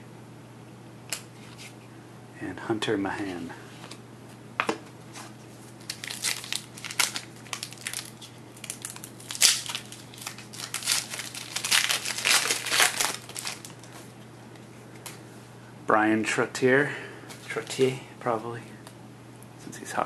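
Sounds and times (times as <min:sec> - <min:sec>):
wrapper tearing and crumpling: 0:05.8 - 0:14.0.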